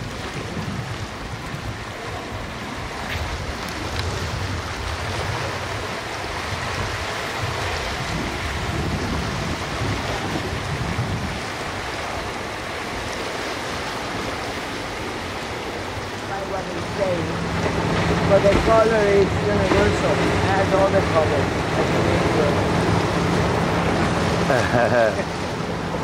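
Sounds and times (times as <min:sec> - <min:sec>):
water rushing along boat hull: 0:00.0 - 0:26.0
low engine rumble: 0:15.0 - 0:26.0.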